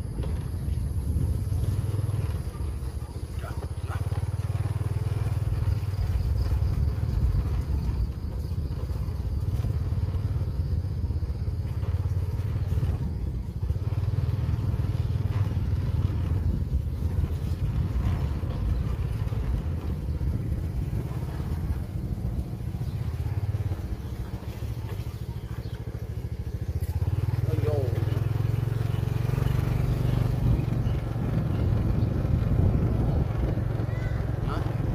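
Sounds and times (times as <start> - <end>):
small motorbike engine droning: 0.0 - 34.9.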